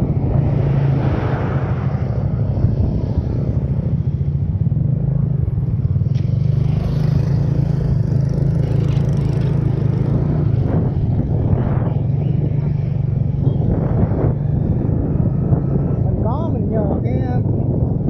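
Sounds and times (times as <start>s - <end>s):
road rumble: 0.0s - 18.0s
wind on microphone: 0.0s - 18.0s
motorcycle engine running: 2.1s - 17.9s.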